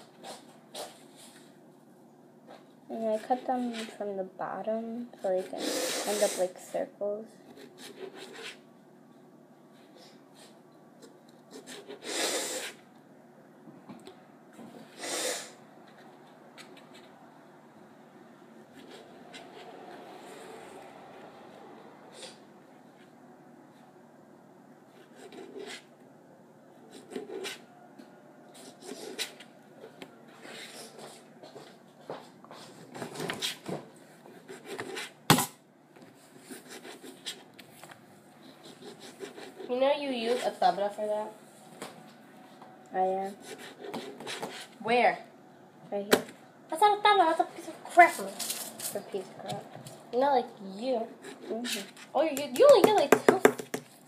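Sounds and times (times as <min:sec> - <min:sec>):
person sniffing hard: 0:05.6 - 0:06.5, 0:12.0 - 0:12.8, 0:14.9 - 0:15.6.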